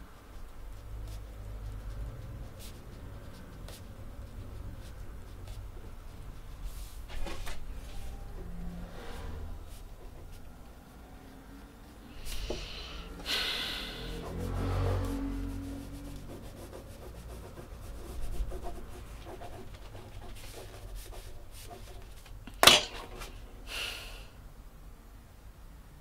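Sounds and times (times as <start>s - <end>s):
pen scratching on paper: 0.3s - 8.0s, 9.6s - 10.7s, 13.9s - 22.4s.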